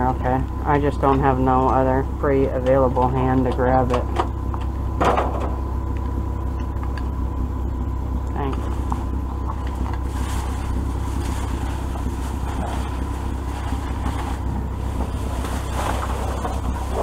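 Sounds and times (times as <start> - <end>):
low mechanical drone: 0.0 - 17.0
plastic bags rustling: 8.6 - 17.0.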